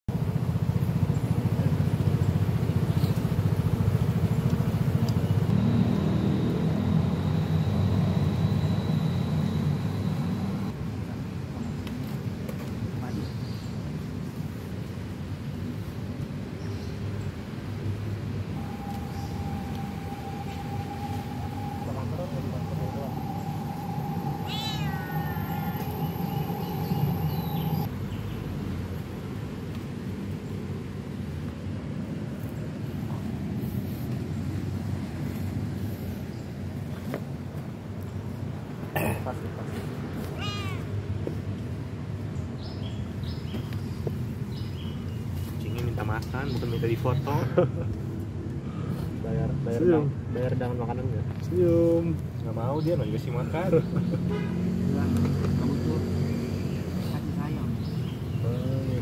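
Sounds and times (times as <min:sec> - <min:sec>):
vehicle engine idling: 0:00.1 - 0:10.8, 0:18.6 - 0:31.4
steady low hum: 0:00.1 - 0:11.8, 0:17.2 - 0:42.5
thin high tone: 0:05.5 - 0:10.7, 0:18.6 - 0:27.9
kitten meowing: 0:24.4 - 0:26.0, 0:40.2 - 0:41.0.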